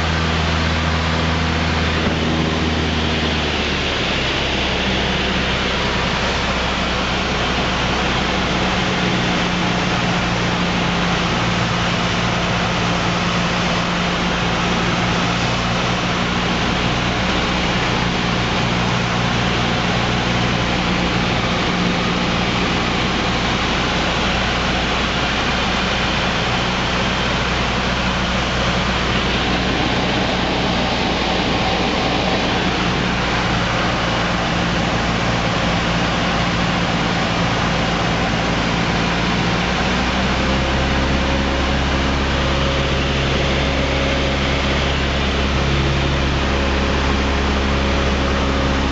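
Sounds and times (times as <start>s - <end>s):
propeller plane engine drone: 0.0s - 48.9s
rush of air noise: 15.2s - 38.4s.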